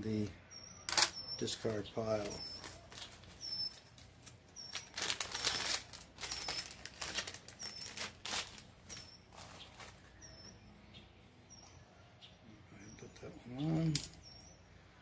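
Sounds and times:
plastic bag crinkling: 0:02.2 - 0:10.3.

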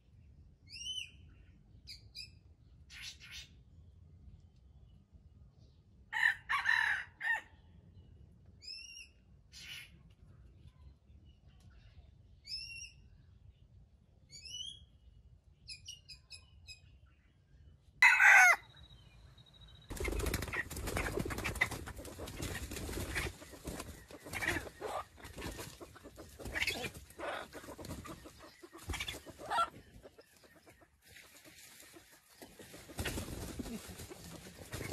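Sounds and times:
rooster call: 0:18.0 - 0:18.6
small birds chirping: 0:18.7 - 0:34.9.

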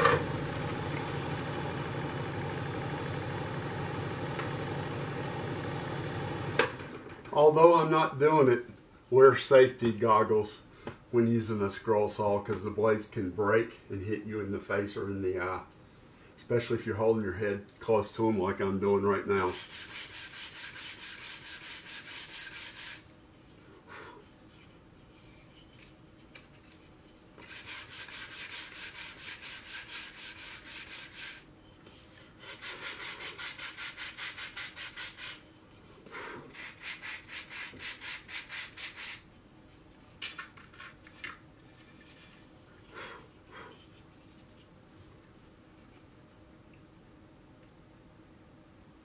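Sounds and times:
scroll saw cutting wood: 0:00.0 - 0:06.8.

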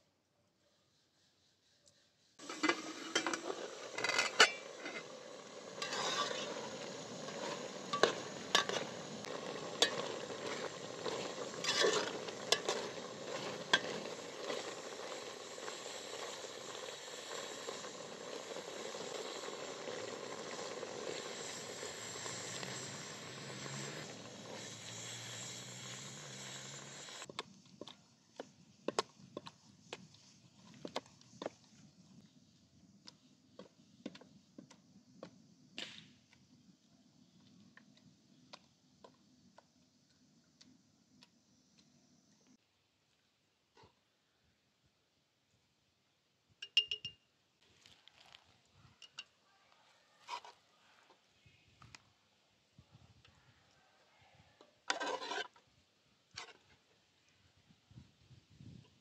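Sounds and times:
metal spoon stirring in a pot: 0:02.4 - 0:27.3, 0:50.2 - 0:50.6, 0:54.8 - 0:55.6
syrup sizzling in a pot: 0:02.4 - 0:27.4, 0:54.8 - 0:55.6.

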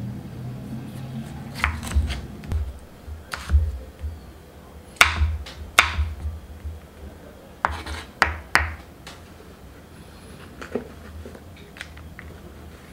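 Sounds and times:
knife knocking on wooden board: 0:01.6 - 0:04.2, 0:05.0 - 0:06.8, 0:07.6 - 0:08.8.

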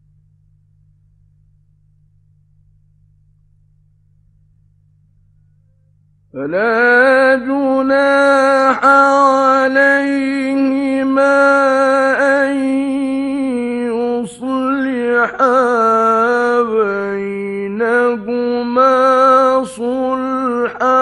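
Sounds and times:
faint hum: 0:00.0 - 0:21.0
man reciting melodically: 0:06.4 - 0:21.0.

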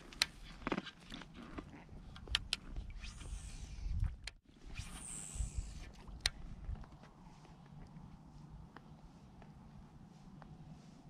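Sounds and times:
thin high whine: 0:04.6 - 0:06.0
fishing reel whirring: 0:04.7 - 0:06.0.

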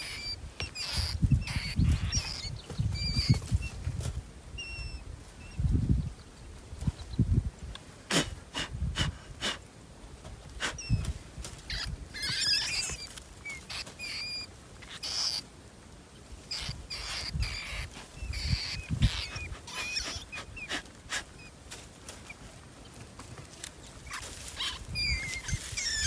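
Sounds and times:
short high squeaks: 0:00.0 - 0:03.8, 0:10.7 - 0:15.4, 0:16.5 - 0:21.5, 0:24.0 - 0:26.0.

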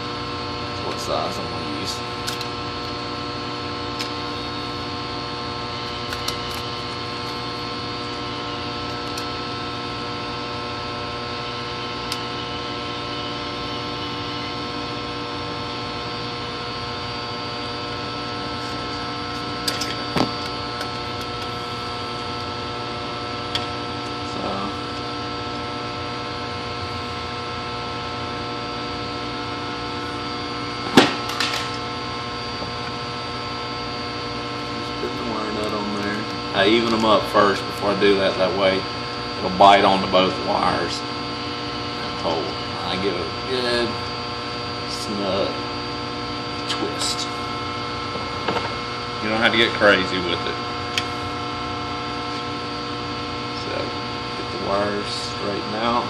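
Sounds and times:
steady electrical hum: 0:00.0 - 0:56.0.

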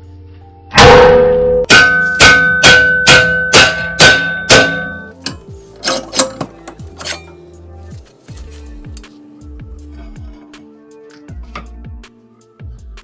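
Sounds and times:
hammer striking steel plate: 0:00.7 - 0:06.5
loud metal crash: 0:00.8 - 0:05.1.

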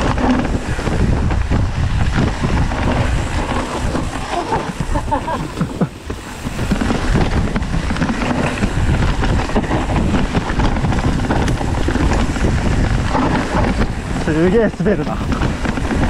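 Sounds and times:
bike rattling over bumps: 0:00.0 - 0:16.0
bike tyre rumble: 0:00.0 - 0:16.0
wind noise on microphone: 0:00.0 - 0:16.0.

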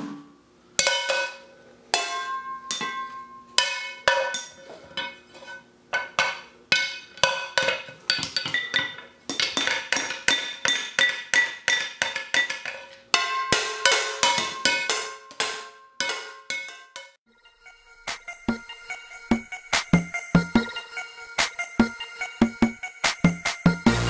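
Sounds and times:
drumsticks hitting metal pots: 0:00.8 - 0:05.2, 0:05.9 - 0:17.2.

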